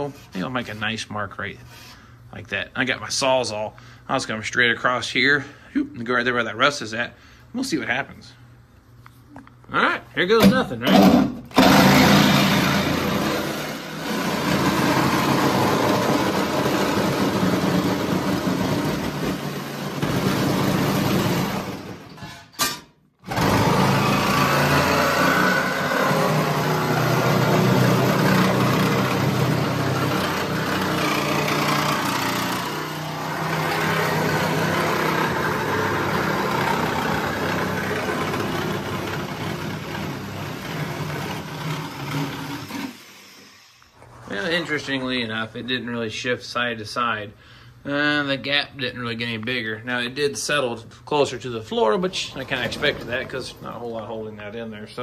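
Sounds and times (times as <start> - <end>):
reciprocating saw cutting steel: 23.3 - 43.8.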